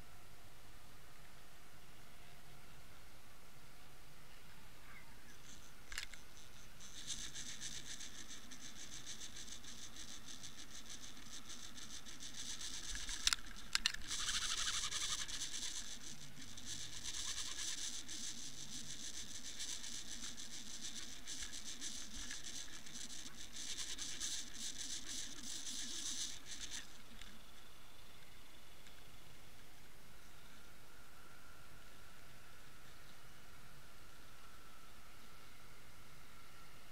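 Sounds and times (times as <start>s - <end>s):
sharp clicks: 5.4s - 29.0s
underwater crackling and scratching: 5.5s - 27.5s.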